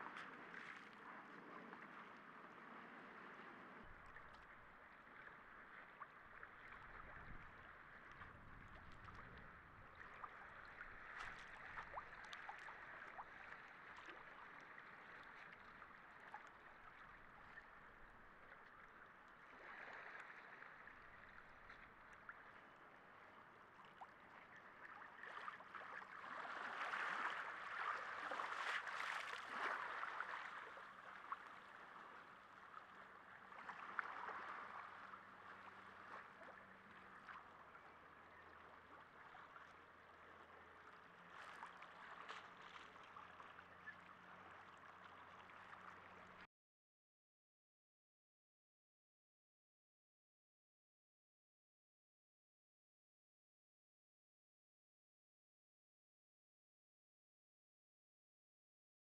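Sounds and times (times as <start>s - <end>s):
water lapping and sloshing: 0.0s - 46.5s.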